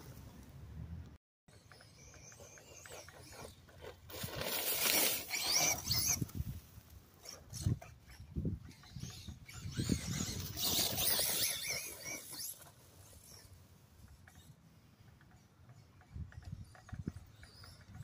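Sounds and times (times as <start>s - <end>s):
electric toy truck motor whining: 1.8s - 6.4s, 9.0s - 13.5s.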